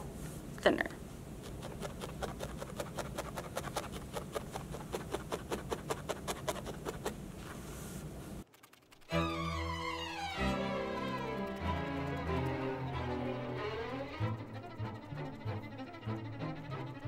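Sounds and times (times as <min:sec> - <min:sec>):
felting needle ticking into foam: 0:01.4 - 0:07.2, 0:10.7 - 0:15.3.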